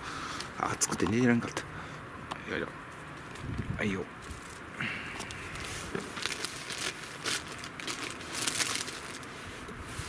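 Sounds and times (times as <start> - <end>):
rustling and crinkling: 4.2 - 10.0.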